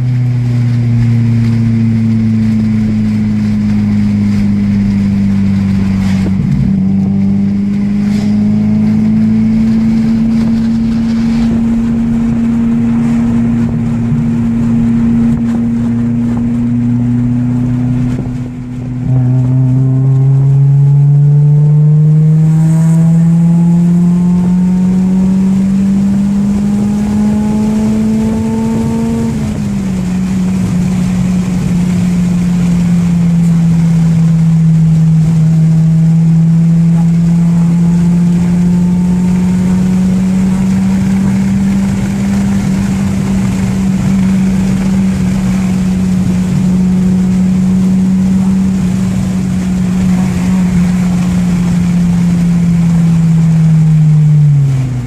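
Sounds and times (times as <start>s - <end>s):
car engine accelerating: 0.0s - 55.0s.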